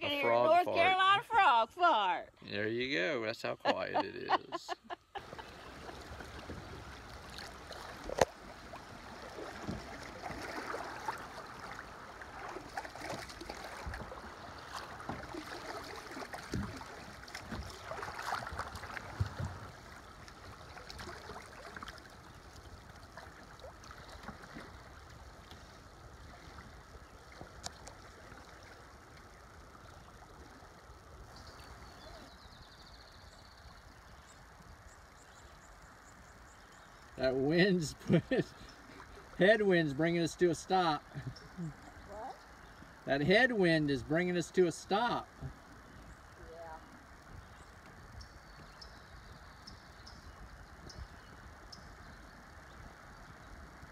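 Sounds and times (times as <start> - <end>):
river water running over riffles: 0.0 - 53.9
small splashes: 5.2 - 32.4.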